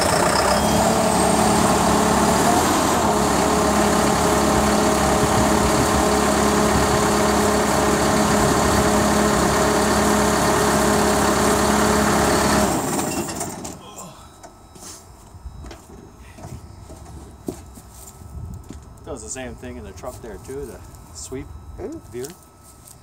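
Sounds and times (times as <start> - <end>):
tractor diesel engine idling: 0.0 - 14.7.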